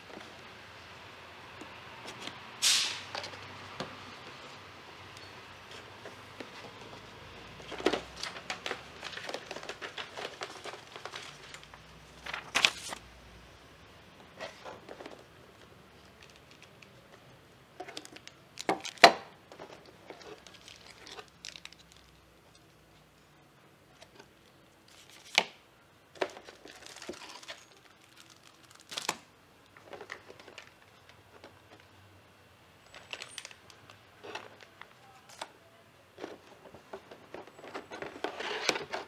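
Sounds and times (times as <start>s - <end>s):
packaging crinkling and rustling: 5.7s - 13.0s, 14.4s - 17.2s, 17.8s - 22.7s, 24.0s - 25.6s, 26.2s - 31.9s, 32.8s - 35.5s, 36.2s - 39.0s.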